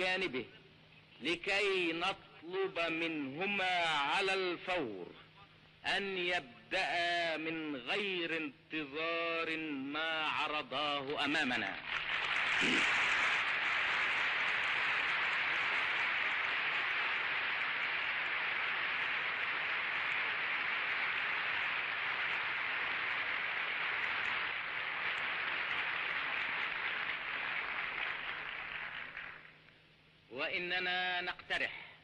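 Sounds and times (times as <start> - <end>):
audience applause: 11.8 - 29.6.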